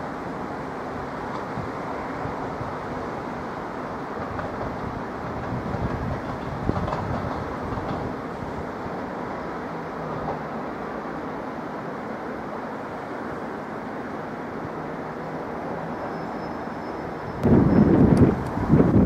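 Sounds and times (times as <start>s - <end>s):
diesel train rumbling: 0.0s - 19.0s
rail clank: 10.0s - 10.5s.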